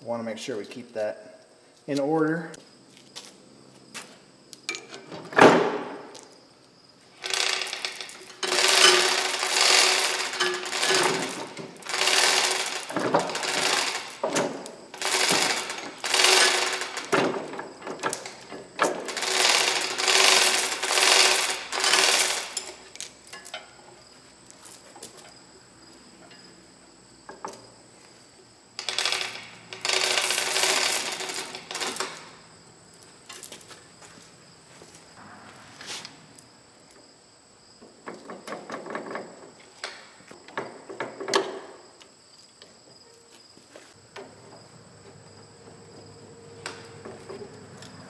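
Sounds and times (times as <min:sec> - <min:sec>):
chain rattling: 0:07.2 - 0:14.2, 0:15.0 - 0:17.1, 0:18.0 - 0:23.8, 0:28.8 - 0:32.4
hoist ratchet clicking: 0:07.2 - 0:17.2, 0:18.0 - 0:23.7, 0:28.8 - 0:32.2.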